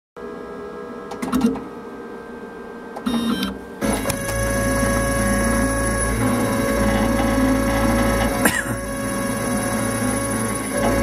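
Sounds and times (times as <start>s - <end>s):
machine motors whirring: 3.0s - 11.0s
engraving cutter high whine: 3.1s - 11.0s.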